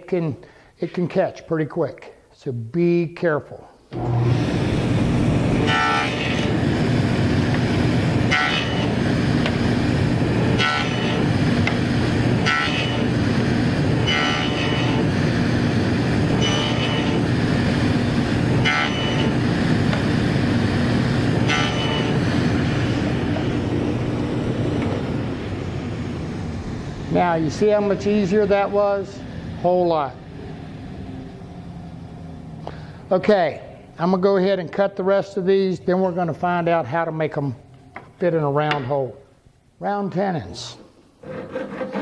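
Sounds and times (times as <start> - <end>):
saw cutting wood whine: 3.9 - 32.4, 41.2 - 42.0
table saw motor humming: 3.9 - 32.7.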